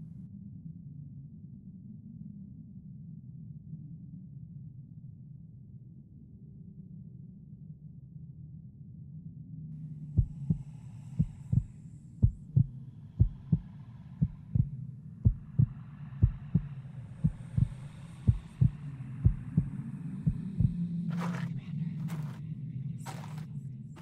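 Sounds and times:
heartbeat thumps: 10.2 - 22.4.

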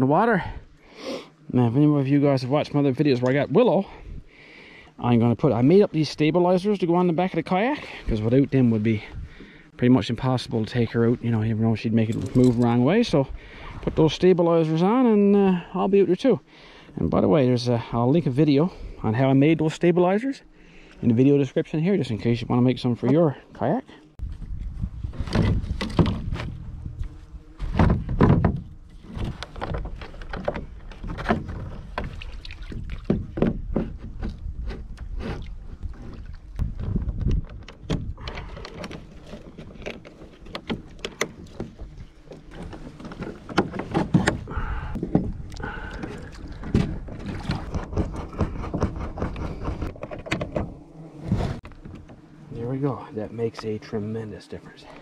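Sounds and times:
plastic pipes knocking and rattling: 27.7 - 32.2.

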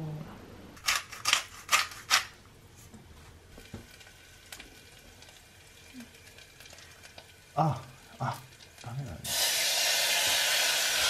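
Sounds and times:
oil sizzling in pan: 3.3 - 11.0.

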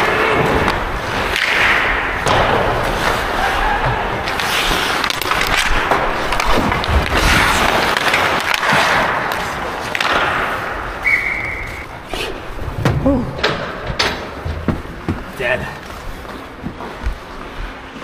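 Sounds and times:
skate blades scraping on ice: 0.0 - 12.7
stick and puck knocks: 0.3 - 11.0.

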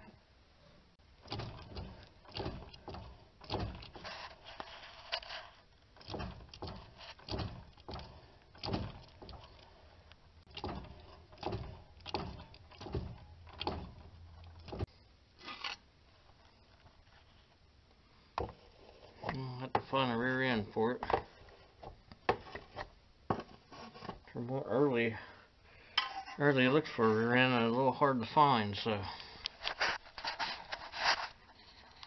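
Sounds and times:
tools knocking and scraping metal: 6.0 - 9.6, 10.5 - 14.9, 26.0 - 26.5.

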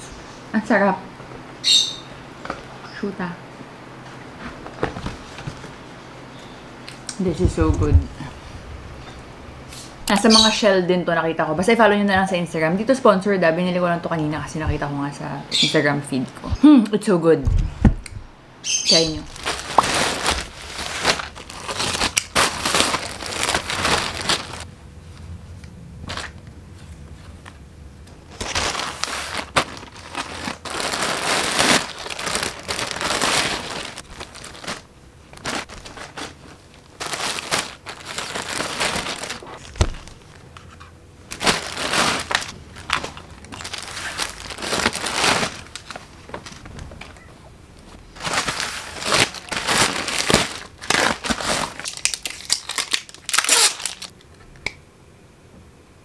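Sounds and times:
plastic packaging crinkling: 19.0 - 24.7, 28.2 - 47.2, 47.8 - 54.2.

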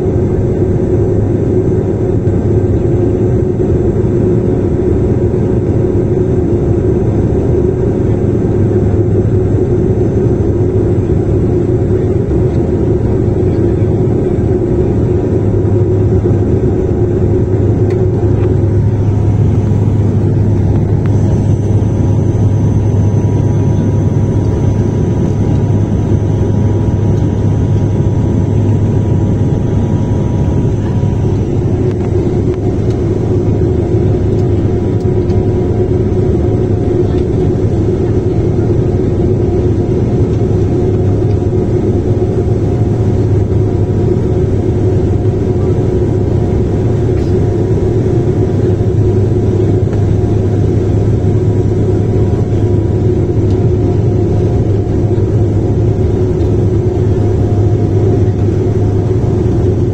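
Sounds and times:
turboprop cabin drone: 0.0 - 59.9
higher steady tone: 8.8 - 59.9.

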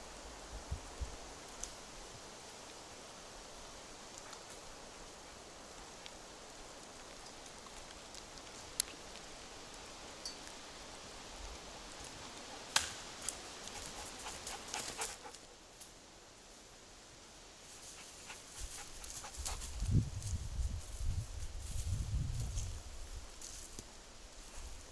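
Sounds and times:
forest ambience: 0.0 - 24.9
dry twigs snapping: 12.0 - 13.9
dog panting: 13.6 - 15.5, 18.0 - 19.8.

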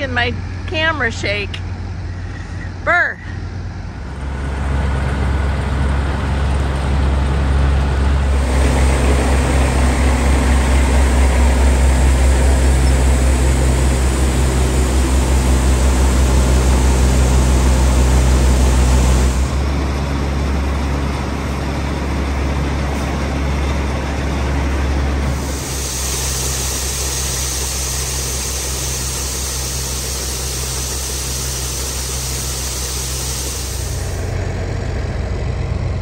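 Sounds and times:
large engine droning: 0.0 - 36.0.

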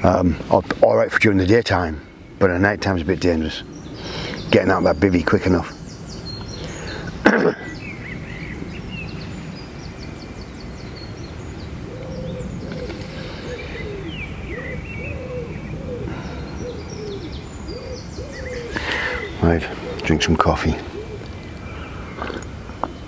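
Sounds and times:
small birds chirping: 0.0 - 23.0
bird cooing: 11.4 - 22.9.

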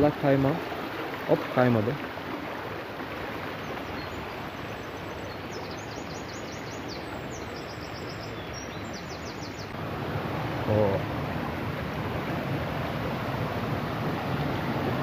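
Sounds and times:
stream rushing over rocks: 0.0 - 8.3, 9.6 - 15.0
bird chirping: 3.9 - 9.8.

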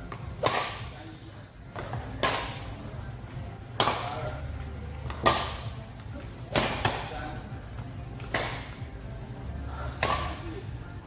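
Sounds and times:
rackets striking shuttlecock: 0.0 - 1.0, 1.7 - 2.8, 3.7 - 4.3, 5.0 - 5.8, 6.4 - 7.2, 8.2 - 8.8, 9.9 - 10.6.

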